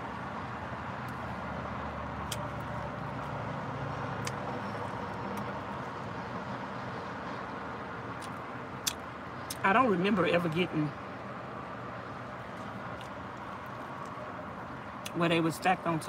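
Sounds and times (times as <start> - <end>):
eating clicks and smacks: 2.2 - 3.4, 8.1 - 9.6, 12.9 - 14.2.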